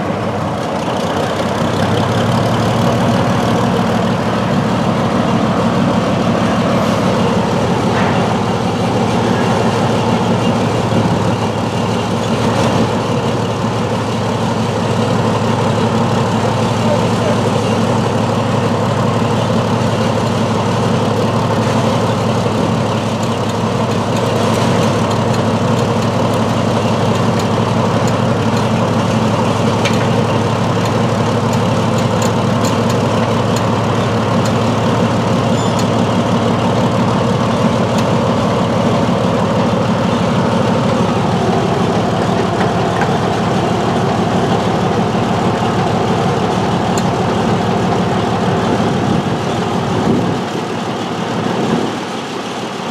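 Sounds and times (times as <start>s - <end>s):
crane engine running: 0.0s - 52.9s.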